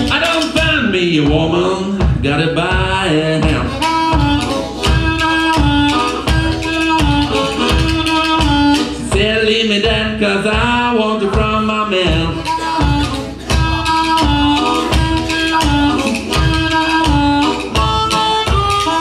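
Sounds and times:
bones percussion clacking: 0.0s - 19.0s
amplified blues harmonica: 2.3s - 9.5s, 12.1s - 19.0s.

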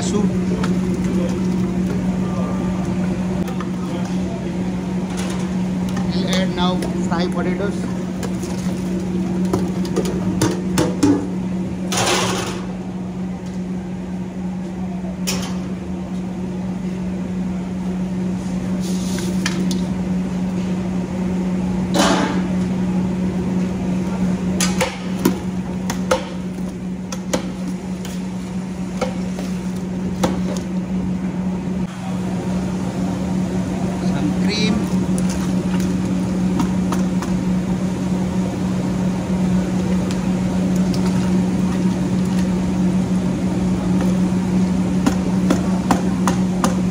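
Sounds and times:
kitchen machine hum: 0.0s - 46.9s.

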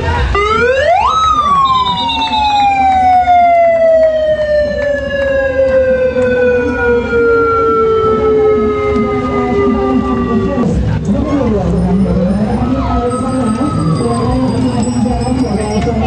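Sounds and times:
crowd noise: 0.0s - 16.0s
siren winding down: 0.3s - 16.0s.

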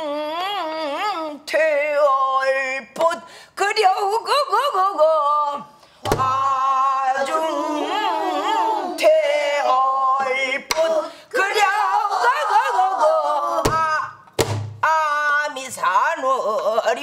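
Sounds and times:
woman singing with vibrato: 0.0s - 2.8s, 3.6s - 14.0s.

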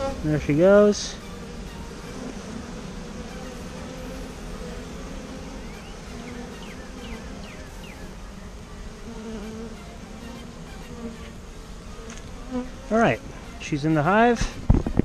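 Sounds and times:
bee swarm buzzing: 0.0s - 15.0s.

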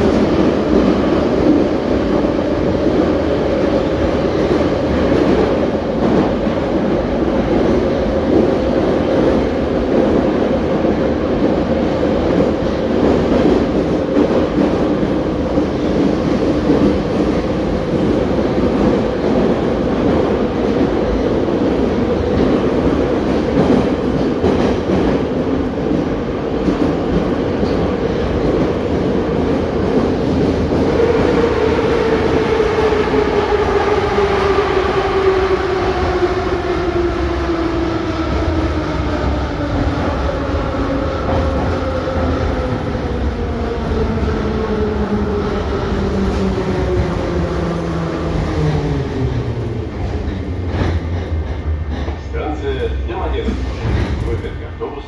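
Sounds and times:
metro train rumble and wheels: 0.0s - 55.0s.

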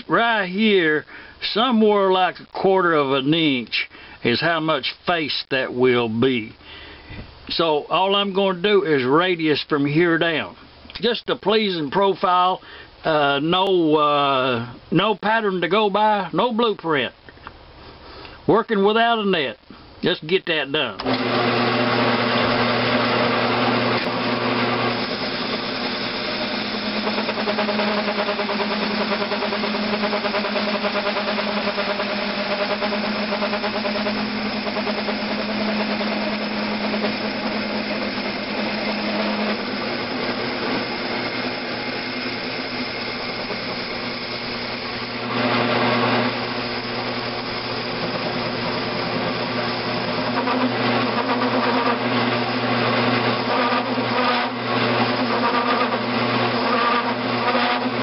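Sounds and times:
lathe motor humming: 21.0s - 58.0s.

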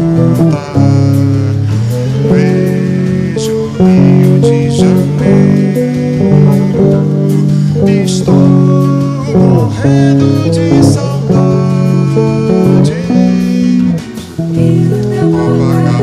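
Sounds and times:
bossa nova guitar chords: 0.0s - 16.0s.

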